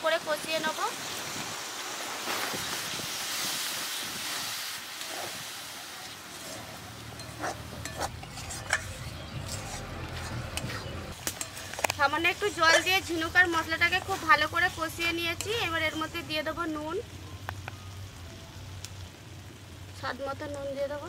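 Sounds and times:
water hissing and sizzling in pan: 0:00.0 - 0:21.0
steel spatula scraping a pan: 0:06.3 - 0:14.8.

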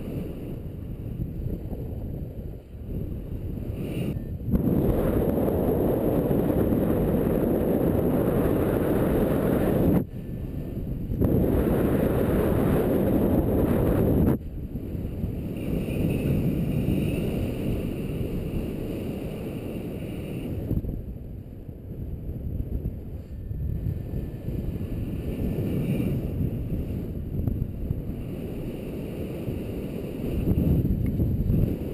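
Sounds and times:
wind buffeting microphone: 0:00.0 - 0:31.9.

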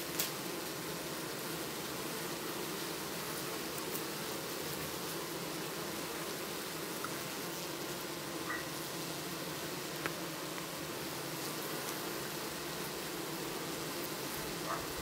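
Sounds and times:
bees buzzing: 0:00.0 - 0:15.0.

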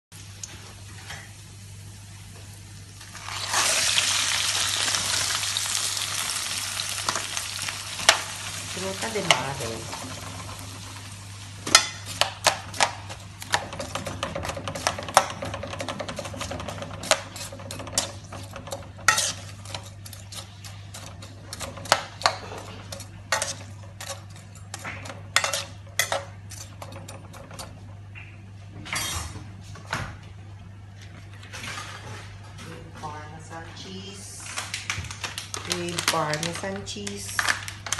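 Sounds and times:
sauce sizzling: 0:01.3 - 0:20.9
spatula scraping frying pan: 0:11.7 - 0:27.7.

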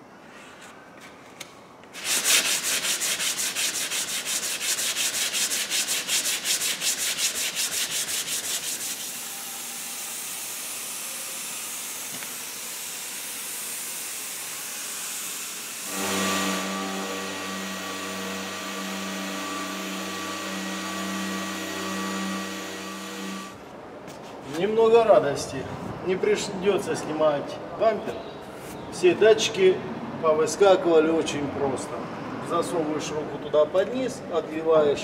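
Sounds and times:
sandpaper rubbing on plastic: 0:01.9 - 0:09.6
power sander humming: 0:09.8 - 0:23.6.

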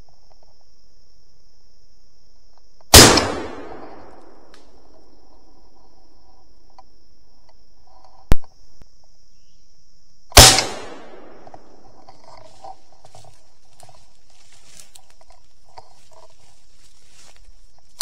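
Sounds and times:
gunshots with echo: 0:10.4 - 0:11.4.

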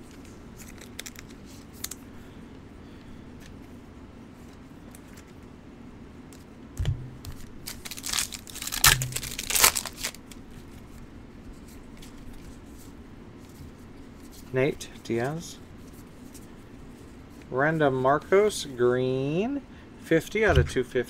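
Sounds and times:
packaging tearing and crinkling: 0:00.6 - 0:02.0, 0:07.2 - 0:10.4
low thuds: 0:06.8 - 0:07.5, 0:20.5 - 0:20.9.

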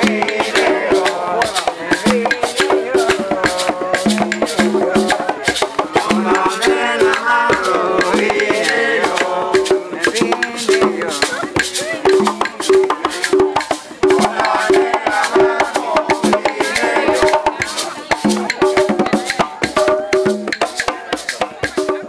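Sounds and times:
conga drums: 0:00.0 - 0:22.0
maracas shaking: 0:00.0 - 0:22.0
voices singing: 0:00.0 - 0:22.0.

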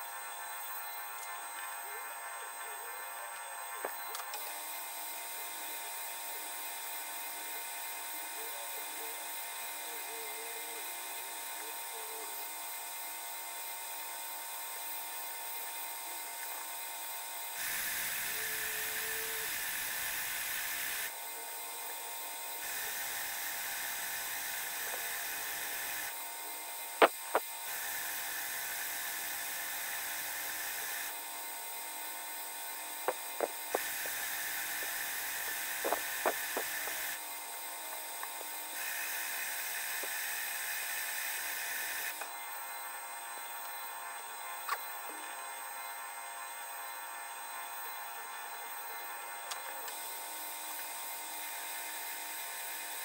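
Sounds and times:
lathe motor and spindle whine: 0:00.0 - 0:53.0
lathe tool cutting metal: 0:17.6 - 0:37.2, 0:37.8 - 0:42.2.

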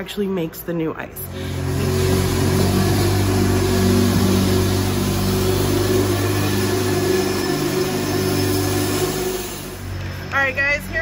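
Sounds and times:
ice resurfacer engine humming: 0:01.3 - 0:11.0.

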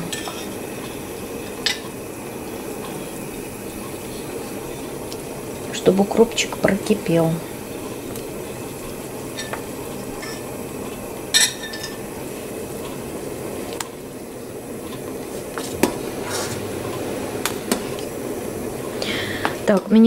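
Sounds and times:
soup boiling in a pot: 0:00.0 - 0:20.0
spoon clinking against pot: 0:11.3 - 0:12.0.

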